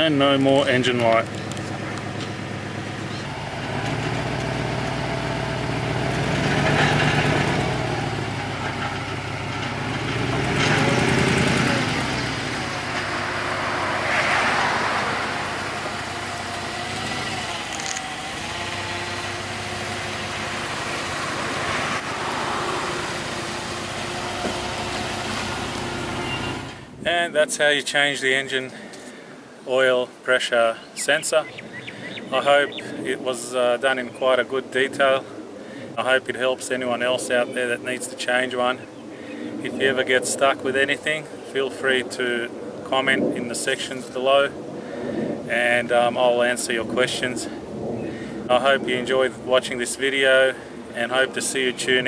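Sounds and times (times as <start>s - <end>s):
car engine running: 0.4s - 27.0s.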